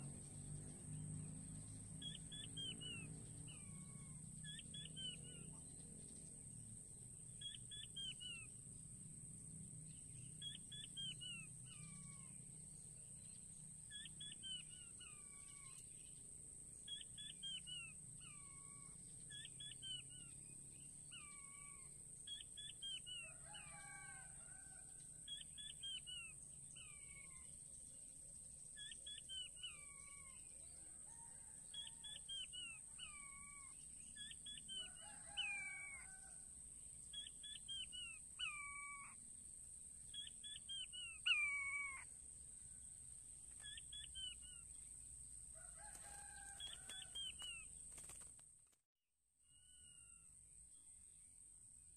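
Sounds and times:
quail calling: 0:13.9 - 0:15.9, 0:31.8 - 0:36.4, 0:37.2 - 0:39.2, 0:40.2 - 0:42.1, 0:43.6 - 0:44.7, 0:45.8 - 0:47.6.

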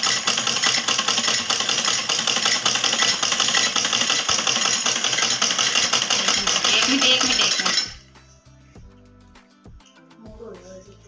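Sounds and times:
sewing machine clattering: 0:00.0 - 0:08.0.

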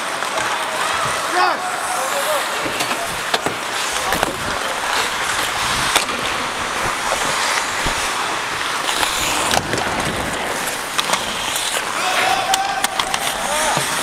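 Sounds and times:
sharp clacks of sticks and puck: 0:00.0 - 0:01.3, 0:01.9 - 0:14.0
skate blades scraping on ice: 0:00.0 - 0:14.0
wind rushing over microphone: 0:04.0 - 0:10.9.

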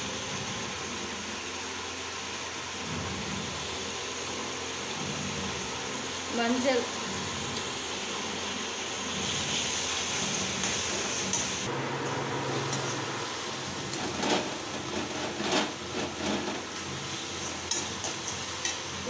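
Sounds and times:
vegetables sizzling in oil: 0:00.0 - 0:19.0
metal spatula scraping pan: 0:12.5 - 0:18.9.

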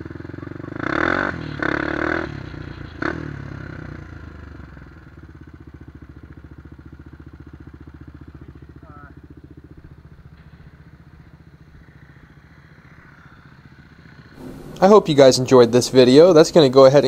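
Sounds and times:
quad engine running: 0:00.0 - 0:17.0
loud bursts of noise: 0:14.4 - 0:15.9.

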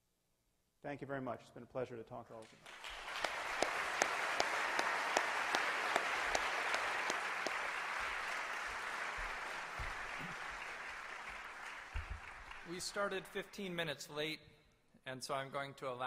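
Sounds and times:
audience applauding: 0:02.6 - 0:13.4
nearby sharp hand claps: 0:02.7 - 0:12.7.

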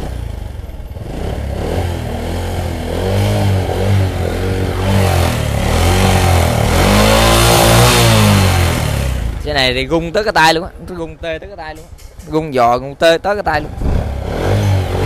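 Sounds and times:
motorbike engine revving: 0:00.0 - 0:10.3, 0:13.5 - 0:15.0.

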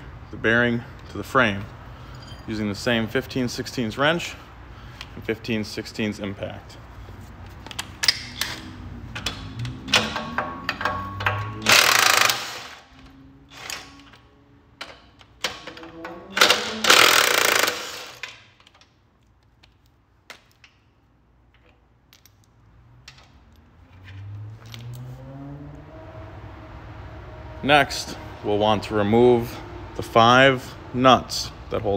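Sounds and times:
metal clinks of wrench and socket: 0:02.0 - 0:02.7
impact wrench hammering: 0:08.0 - 0:12.9, 0:14.8 - 0:18.5.

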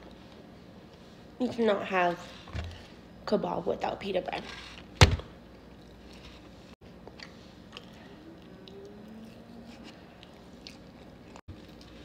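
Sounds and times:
chewing food: 0:07.0 - 0:12.0.

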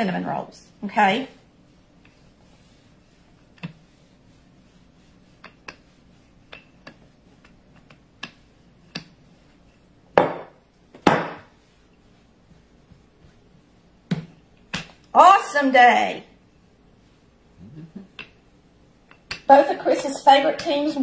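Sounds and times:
dough thumps: 0:01.4 - 0:15.1, 0:18.0 - 0:19.6
rolling pin knocking on counter: 0:10.2 - 0:11.5.

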